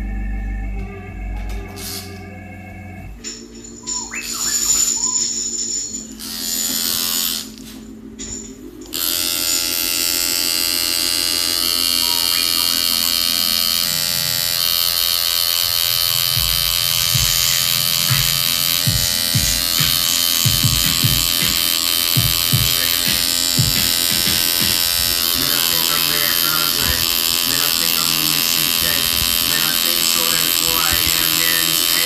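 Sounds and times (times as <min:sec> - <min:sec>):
tattoo machine buzzing: 0:01.3 - 0:32.0.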